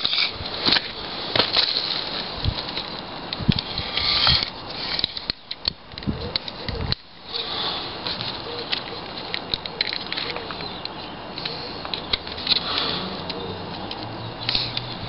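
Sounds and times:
rustling against a branch: 0:00.0 - 0:15.0
tape measure clicks: 0:03.3 - 0:07.0, 0:08.6 - 0:14.9.

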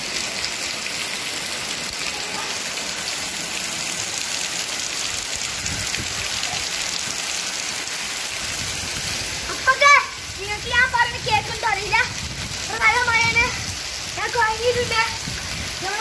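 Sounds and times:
heavy rain splashing on tiles: 0:00.0 - 0:16.0.

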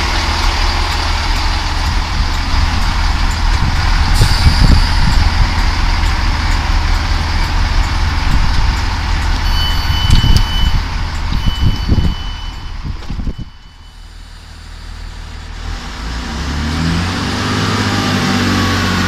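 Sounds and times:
diesel train engine running: 0:00.0 - 0:19.0
electronic door alert tone: 0:09.4 - 0:14.0.

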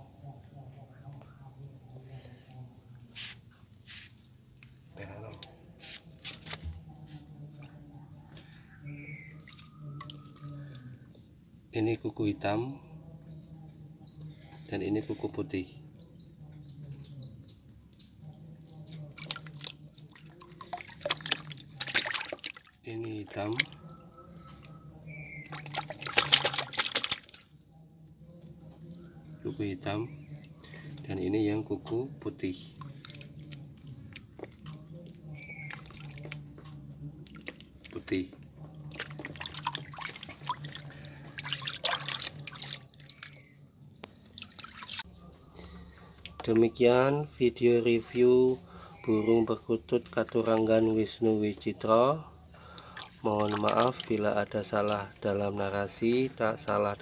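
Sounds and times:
water splashing in a basin: 0:08.8 - 0:11.0, 0:18.2 - 0:45.1, 0:50.0 - 0:51.9, 0:52.5 - 0:56.0.

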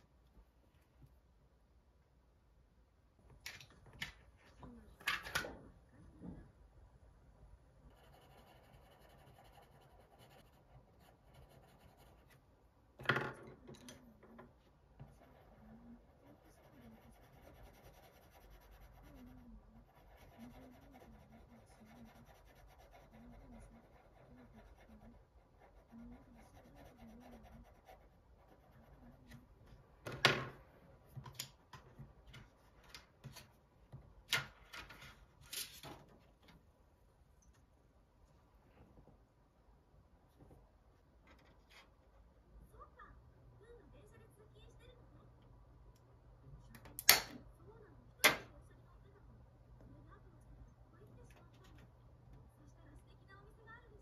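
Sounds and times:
pencil scratching on paper: 0:07.9 - 0:12.5, 0:15.0 - 0:29.5.

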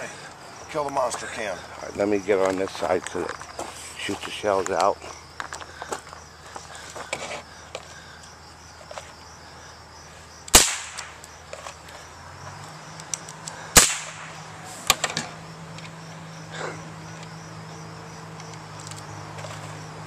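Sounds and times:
rifle shots cracking: 0:10.5 - 0:11.2, 0:13.8 - 0:14.4.

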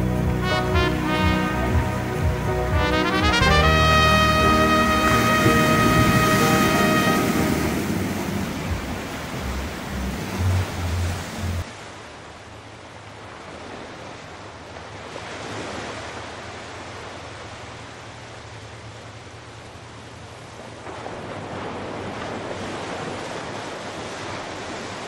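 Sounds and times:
waves breaking on pebbled shore: 0:05.0 - 0:12.4, 0:20.6 - 0:25.0.

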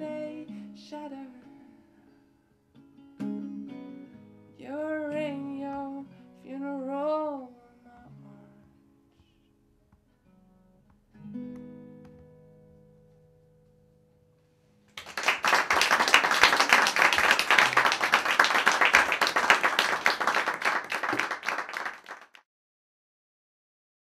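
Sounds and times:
audience applauding: 0:15.0 - 0:22.4.

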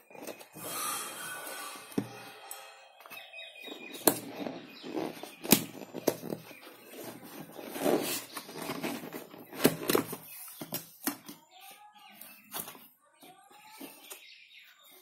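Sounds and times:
cardboard rustling and scraping: 0:00.0 - 0:02.2, 0:03.1 - 0:11.2.

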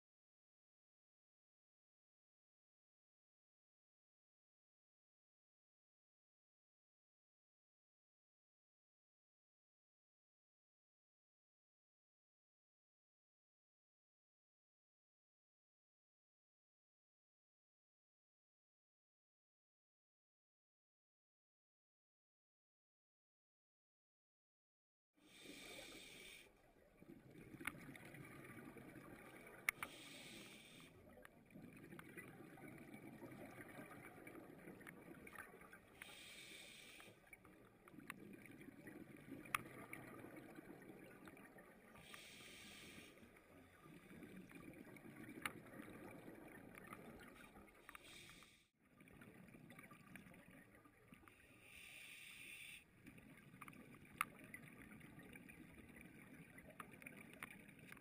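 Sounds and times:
regulator breathing hiss: 0:25.3 - 0:26.5, 0:29.8 - 0:30.9, 0:36.0 - 0:37.2, 0:42.0 - 0:43.2, 0:48.0 - 0:48.6, 0:51.6 - 0:52.8.

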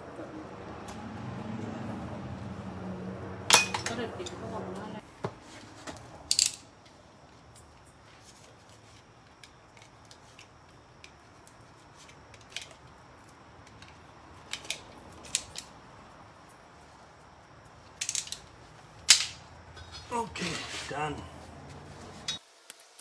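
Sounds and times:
tool clicking and scraping in tyre: 0:17.9 - 0:21.0.

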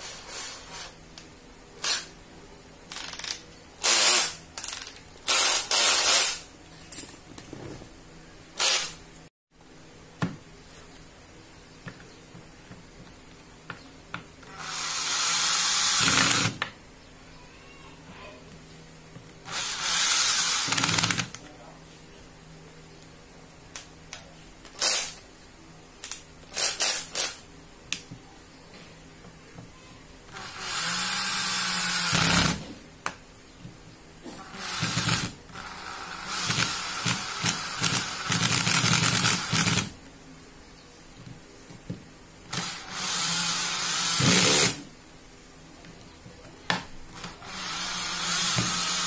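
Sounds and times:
cordless drill motor running: 0:14.4 - 0:16.6, 0:19.5 - 0:21.3, 0:30.3 - 0:32.6, 0:34.4 - 0:39.9, 0:42.5 - 0:44.8, 0:47.1 - 0:49.0.

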